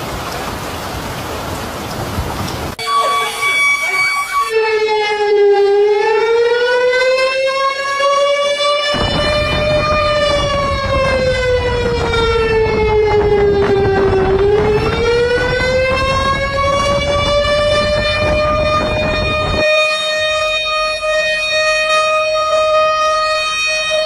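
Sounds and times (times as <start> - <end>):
floodwater rushing: 0.0 - 4.6, 8.9 - 19.6
warning siren wailing: 2.7 - 24.0.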